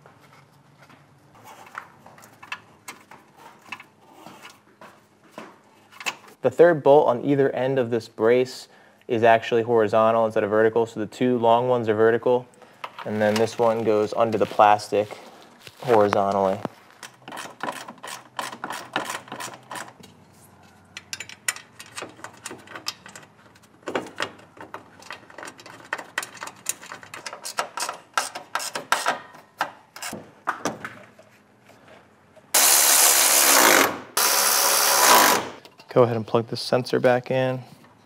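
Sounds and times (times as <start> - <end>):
bolts clicking and knocking: 16.1 - 20.1, 20.9 - 31.2.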